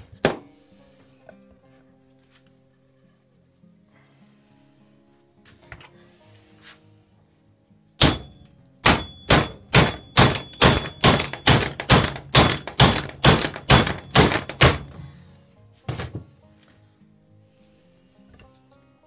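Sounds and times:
hammer blows on metal: 8.0s - 11.7s.

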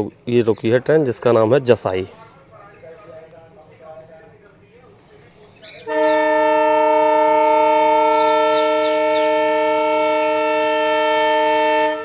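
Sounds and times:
train horn blast: 5.8s - 12.0s.

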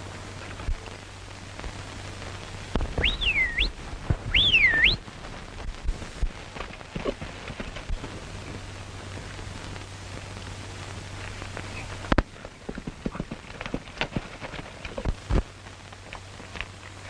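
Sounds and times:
film soundtrack hiss: 0.0s - 17.0s
man whistling shrilly: 3.0s - 5.0s.

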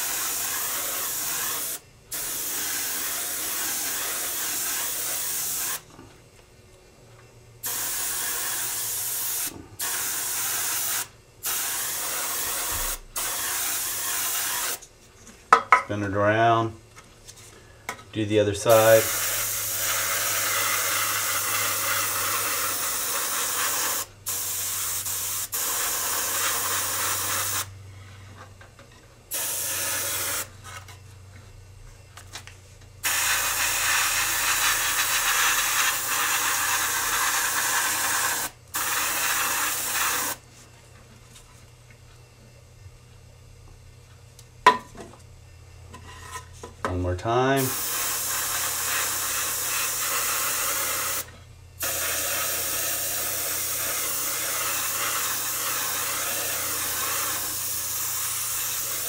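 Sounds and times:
airbrush spraying hiss: 0.0s - 5.9s, 7.6s - 14.8s, 18.7s - 27.8s, 29.3s - 30.5s, 33.0s - 40.4s, 47.6s - 59.0s.

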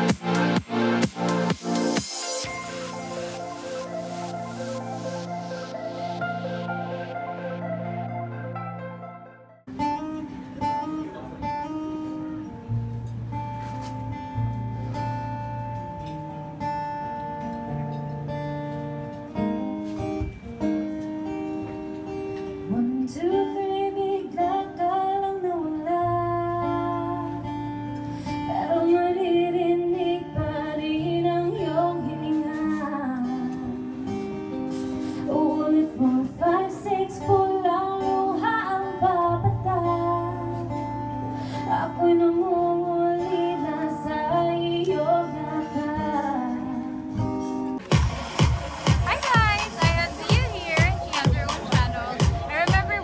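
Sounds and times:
acoustic guitar playing: 0.0s - 53.0s
woman singing: 22.7s - 27.6s, 28.5s - 34.4s, 35.2s - 40.9s, 41.6s - 47.3s, 49.1s - 53.0s.

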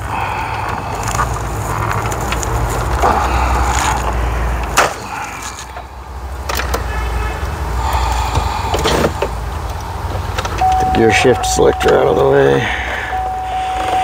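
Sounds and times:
steady low hum: 10.6s - 14.0s.

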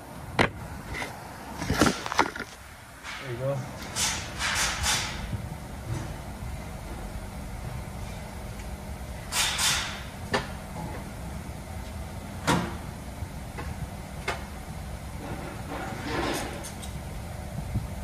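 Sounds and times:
steady low hum: 0.0s - 18.0s
sharp knocks and clanks: 0.4s - 5.3s.

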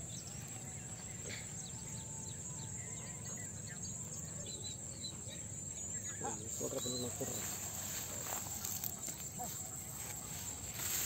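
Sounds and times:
bird chirps: 0.0s - 11.0s
insect drone: 0.0s - 11.0s.

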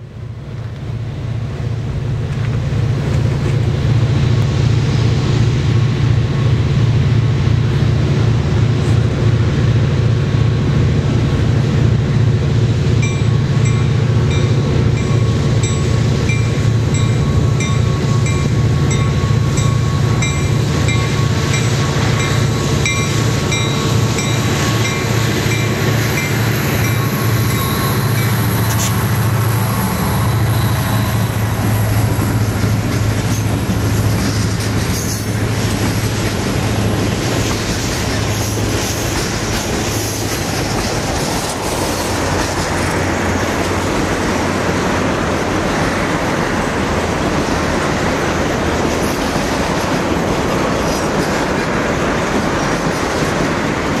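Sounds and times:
diesel locomotive engine drone: 0.0s - 54.0s
train wheels clattering on rails: 0.0s - 54.0s
bell ringing: 13.0s - 28.4s.

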